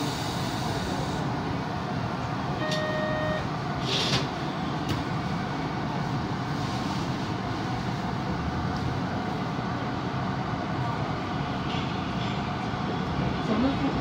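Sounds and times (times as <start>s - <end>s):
air hiss: 0.0s - 1.3s
subway train low hum: 0.0s - 14.0s
short beep: 2.6s - 3.5s.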